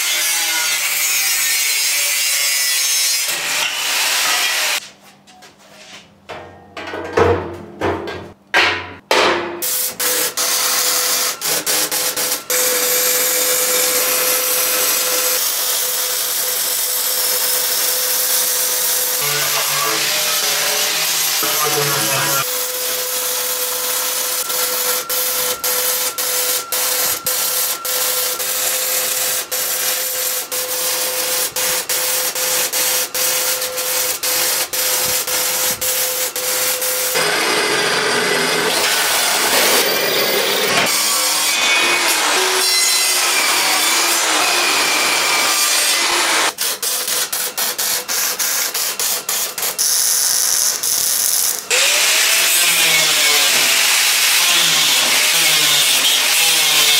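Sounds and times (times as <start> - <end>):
welding crackling hiss: 9.7 - 37.2, 46.8 - 51.8
metalwork noise: 18.8 - 31.8.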